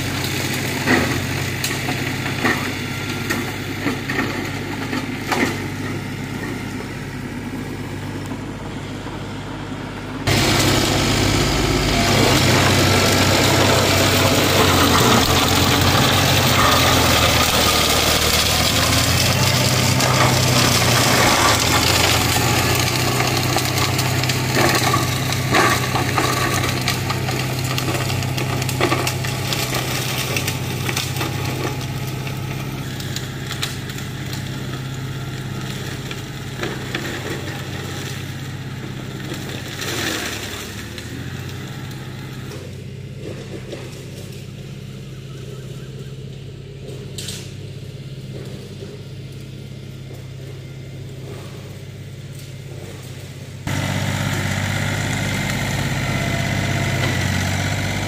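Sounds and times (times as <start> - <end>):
mulcher shredding: 0.0 - 58.0
tractor diesel engine: 0.0 - 58.0
debris cracking: 10.3 - 41.6.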